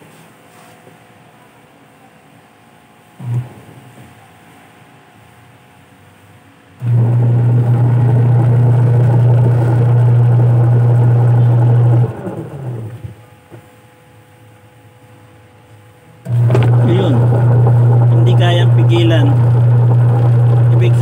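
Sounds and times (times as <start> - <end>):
washing machine motor humming: 3.1 - 4.2, 6.7 - 14.8, 15.9 - 21.0.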